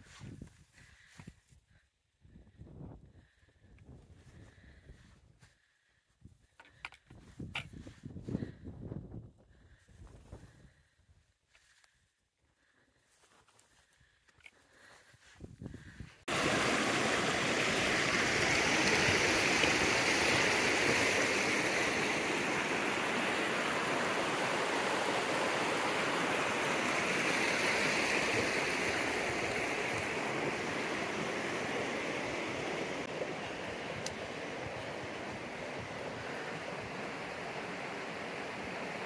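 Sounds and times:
stream rushing over rocks: 0:16.3 - 0:39.0.

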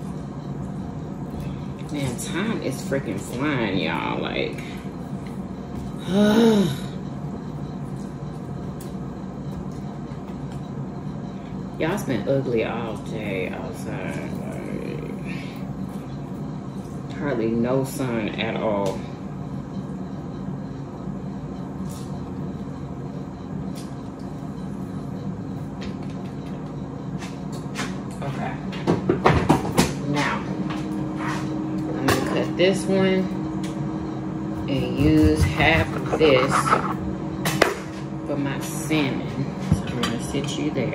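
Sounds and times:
steady low hum: 0:00.0 - 0:40.9
motor hum: 0:30.2 - 0:40.0
woman's wordless vocal sound: 0:35.8 - 0:37.0.

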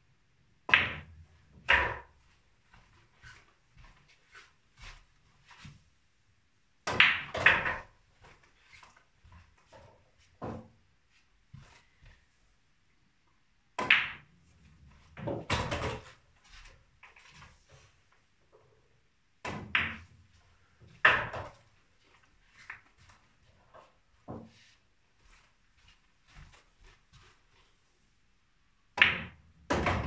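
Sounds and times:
snooker balls clacking: 0:06.9 - 0:07.9, 0:21.0 - 0:21.6, 0:29.0 - 0:30.0.

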